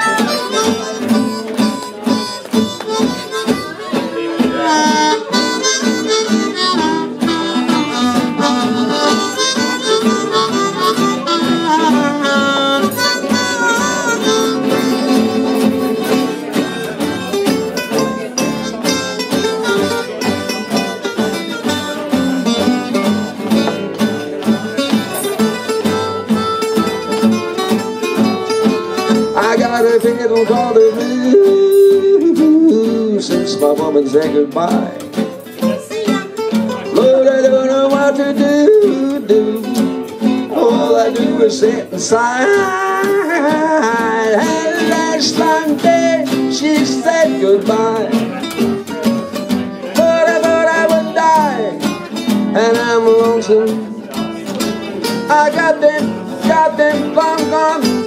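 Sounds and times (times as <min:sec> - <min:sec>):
harmonica solo: 0:00.0 - 0:29.4
strummed acoustic guitars: 0:00.0 - 0:58.0.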